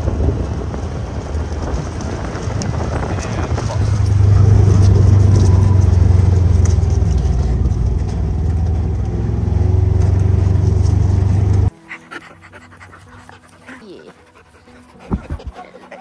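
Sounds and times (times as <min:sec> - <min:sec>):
vehicle engine low rumble: 0:00.0 - 0:11.8
dog panting: 0:11.7 - 0:16.0.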